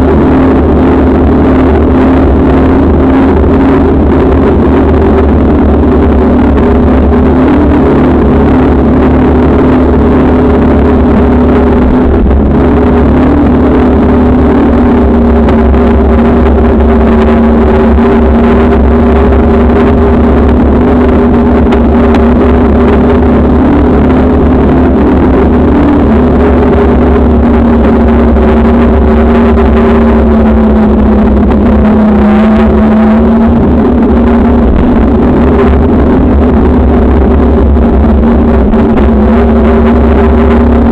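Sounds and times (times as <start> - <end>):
droning hum: 0.0 - 40.9
wind noise: 0.0 - 40.9.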